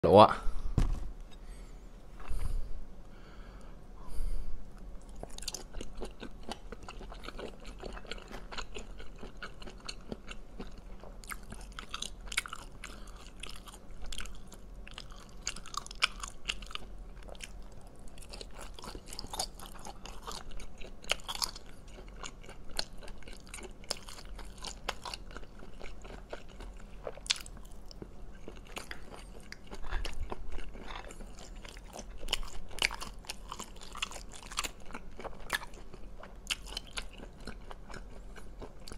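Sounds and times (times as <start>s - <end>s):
wet chewing sounds: 4.8s - 38.9s.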